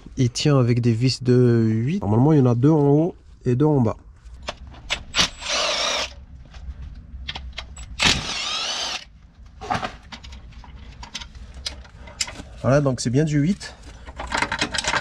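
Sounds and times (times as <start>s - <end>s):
power tool whining: 5.2s - 6.2s, 7.8s - 9.1s
tool and metal clicks: 14.1s - 15.0s.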